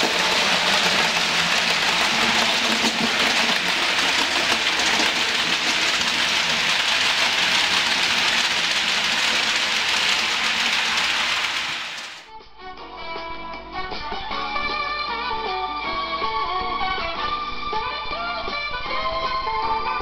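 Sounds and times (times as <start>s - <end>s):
model train wheels rolling on rails: 0.0s - 12.3s.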